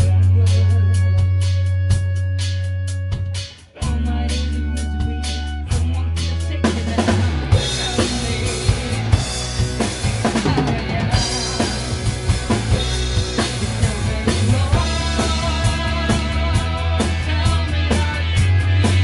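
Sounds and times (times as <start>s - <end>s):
electric guitars: 0.0s - 19.0s
drum kit kick and snare hits: 5.2s - 19.0s.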